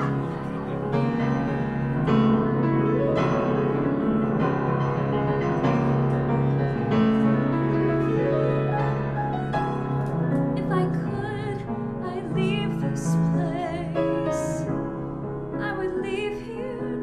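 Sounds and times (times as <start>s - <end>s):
solo piano chords: 0.0s - 17.0s.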